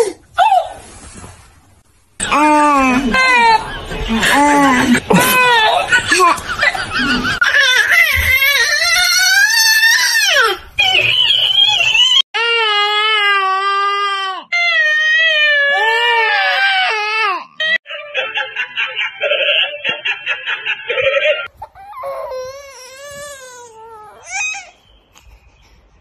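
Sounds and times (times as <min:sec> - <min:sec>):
baby crying: 0:12.4 - 0:17.8, 0:21.6 - 0:24.8.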